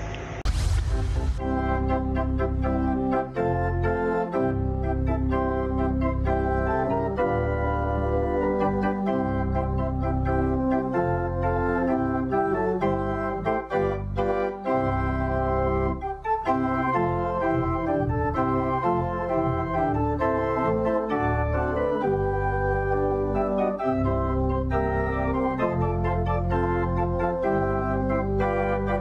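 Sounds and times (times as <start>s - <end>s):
organ playing hymn chords: 1.4s - 29.0s.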